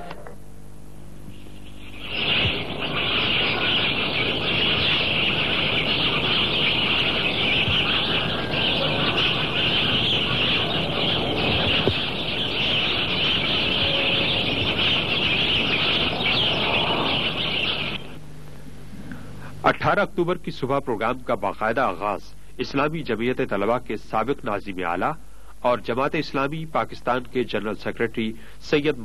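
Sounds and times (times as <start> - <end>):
small birds chirping: 1.3 - 18.2.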